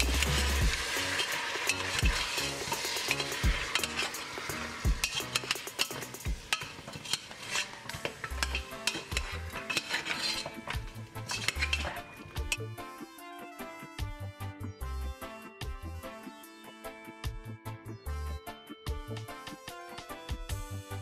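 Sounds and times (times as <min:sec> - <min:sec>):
meat sizzling in hot oil: 0:00.0 - 0:12.6
spoon scraping metal pot: 0:00.0 - 0:12.8.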